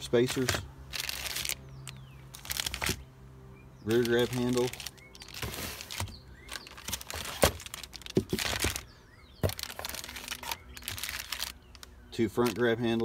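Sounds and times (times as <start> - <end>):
plastic bags crinkling: 0.9 - 1.6, 2.3 - 3.0, 3.9 - 12.6.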